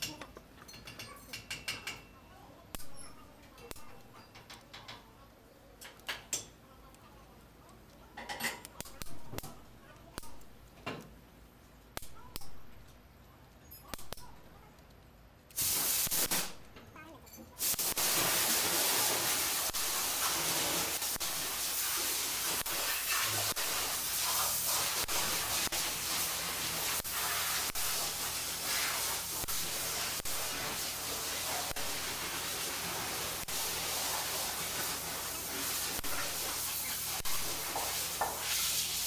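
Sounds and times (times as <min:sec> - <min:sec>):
steady hiss: 0:15.5 - 0:16.7, 0:17.6 - 0:39.0.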